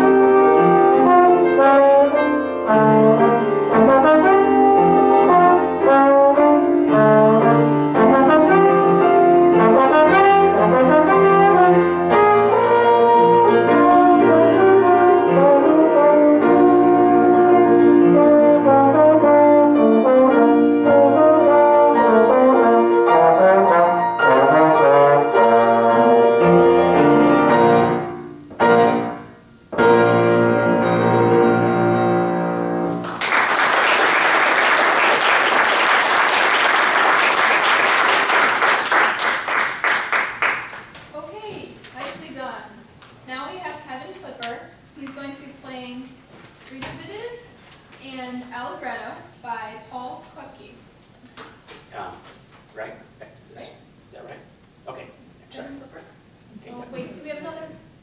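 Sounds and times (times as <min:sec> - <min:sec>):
trombone solo: 0:00.0 - 0:33.0
piano accompaniment: 0:00.0 - 0:42.6
audience applause: 0:33.0 - 0:41.0.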